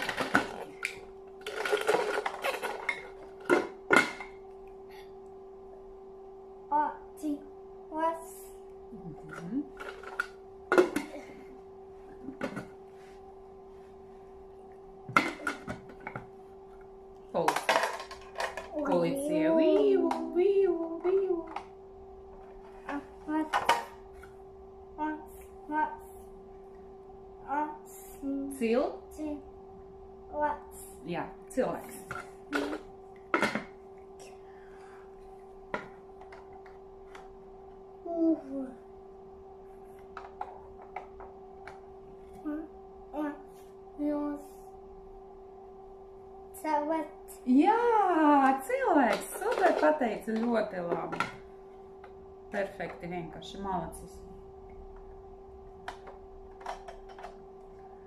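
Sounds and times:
plastic toys knocking: 0.0s - 4.4s, 17.4s - 19.1s, 49.1s - 51.4s
faint steady hum: 0.0s - 58.0s
plastic clicks and clatters: 55.8s - 57.4s.

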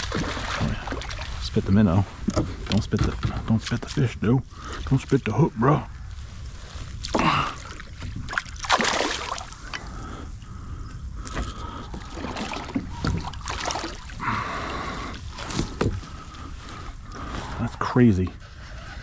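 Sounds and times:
water sloshing and dripping: 0.0s - 5.3s, 6.6s - 17.2s
breathy gasps: 7.1s - 7.8s, 14.2s - 15.3s.

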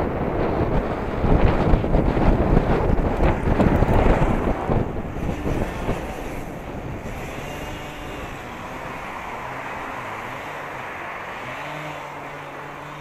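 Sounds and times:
bike tyres rolling on asphalt: 0.0s - 13.0s.

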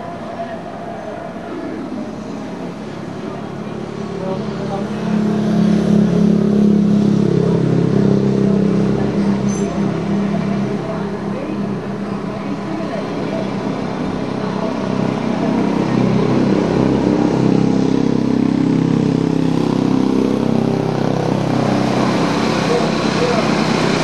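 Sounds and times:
indistinct voices: 0.0s - 5.8s
vehicle engine running: 0.0s - 24.0s.

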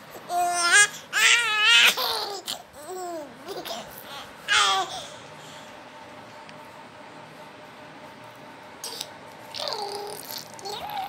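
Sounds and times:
baby babbling and laughing: 0.3s - 5.1s, 8.9s - 11.0s.

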